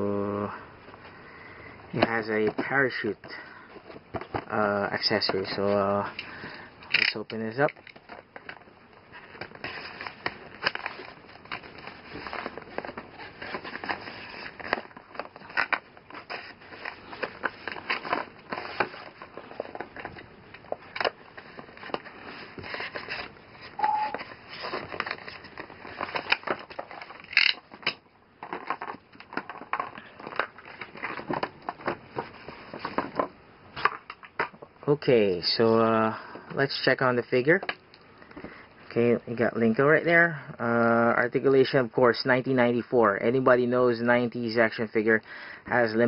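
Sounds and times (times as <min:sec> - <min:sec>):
plastic and card crinkling: 0:00.1 - 0:34.6.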